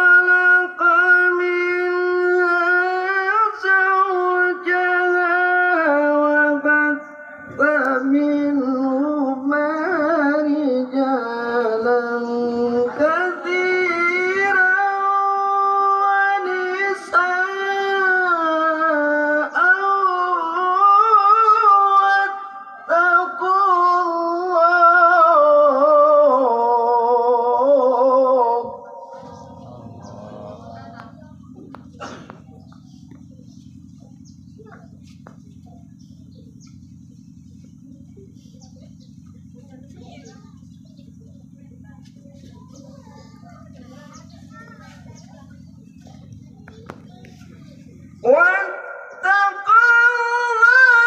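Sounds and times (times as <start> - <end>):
man reciting melodically: 0.0 - 31.3, 48.1 - 51.0.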